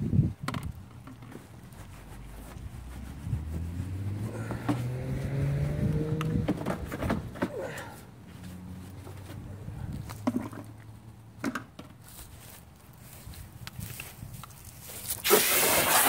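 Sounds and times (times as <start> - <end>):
vehicle engine accelerating past: 2.6 - 7.2, 8.4 - 9.8.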